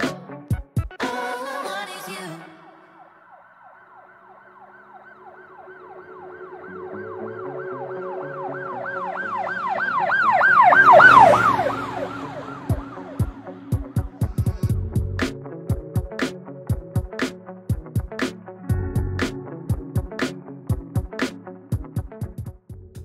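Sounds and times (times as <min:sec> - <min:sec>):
stepping bass line: 0:00.0 - 0:01.1, 0:12.7 - 0:23.0
siren-like wail in music: 0:02.6 - 0:14.7.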